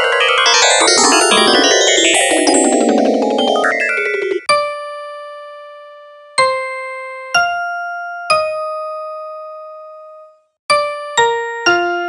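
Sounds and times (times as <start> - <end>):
bell-like keyboard notes: 0.0 - 4.5.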